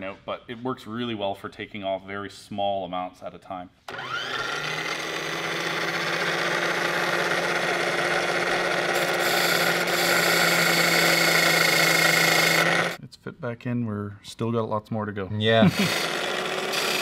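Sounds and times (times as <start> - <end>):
grinding wheel spinning: 3.9 - 13.0, 15.7 - 17.0.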